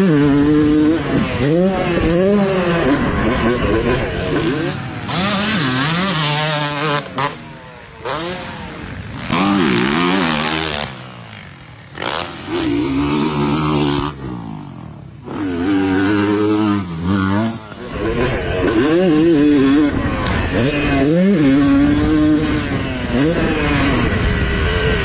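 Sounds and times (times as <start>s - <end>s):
dirt bikes revving: 0.0s - 25.0s.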